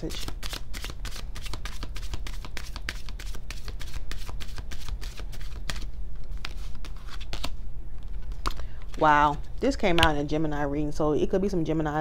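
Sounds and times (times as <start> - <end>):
cards being shuffled: 0.0 - 9.4
low steady hum: 0.0 - 12.0.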